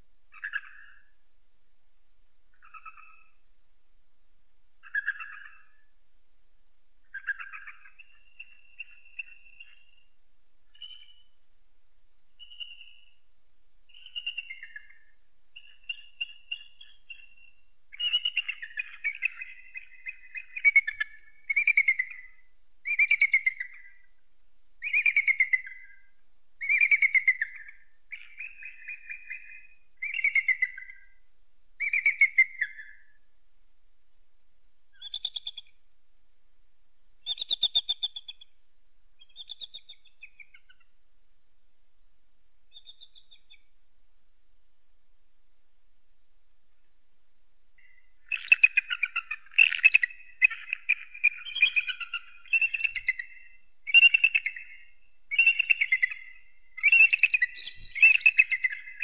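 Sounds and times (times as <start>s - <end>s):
eagle whistled calls: 18.0s - 24.1s, 24.8s - 26.0s, 26.6s - 31.1s, 31.8s - 33.1s, 35.0s - 35.7s, 37.2s - 38.5s, 42.7s - 43.6s, 47.8s - 59.0s.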